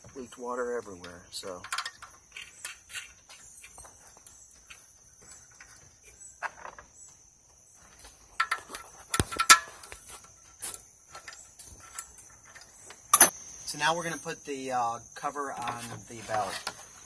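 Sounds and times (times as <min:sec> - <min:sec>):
high insect drone: 0:00.0 - 0:17.0
metal clicks and knocks: 0:01.0 - 0:02.2, 0:08.4 - 0:09.7.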